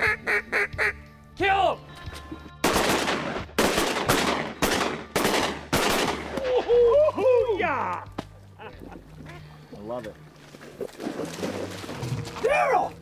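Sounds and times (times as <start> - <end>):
ducks quacking: 0.0 - 1.0
shotgun shots: 2.6 - 6.4.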